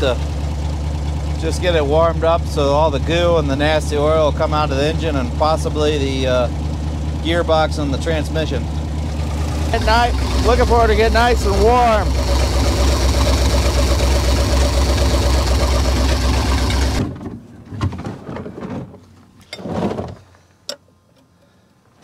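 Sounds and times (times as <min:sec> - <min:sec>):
engine idling: 0:00.0 - 0:17.1.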